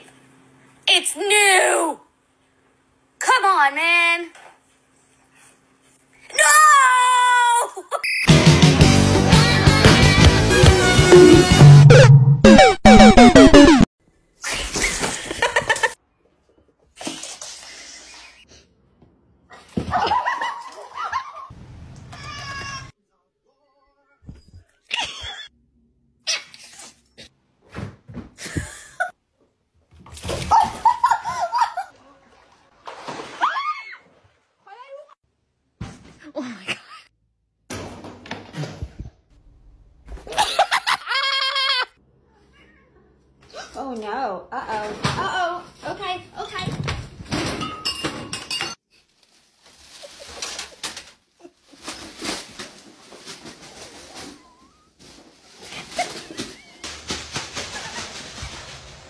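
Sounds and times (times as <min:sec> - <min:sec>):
bathwater sloshing: 0:30.1 - 0:34.5
plastic bag crinkling: 0:49.0 - 0:59.0.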